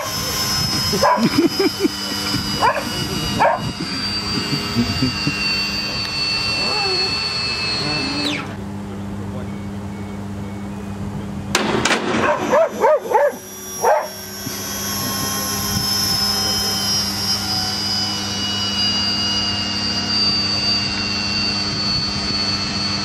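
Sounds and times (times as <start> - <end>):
machine whine: 0.0 - 23.0
steady low hum: 0.0 - 23.0
dog barking: 1.0 - 1.2, 2.6 - 3.6, 12.2 - 14.2.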